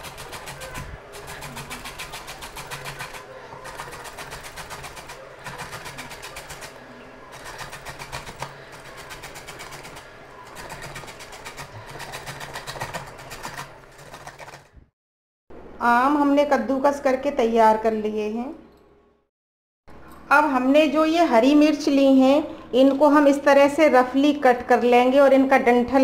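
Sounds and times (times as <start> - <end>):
mango grated on metal grater: 0.0 - 14.7.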